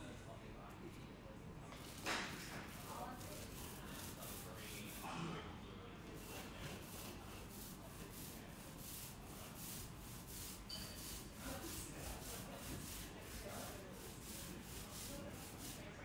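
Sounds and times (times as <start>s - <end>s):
paint roller rubbing on wall: 1.9s - 5.0s, 6.1s - 16.0s
faint high squeak: 10.7s - 11.0s.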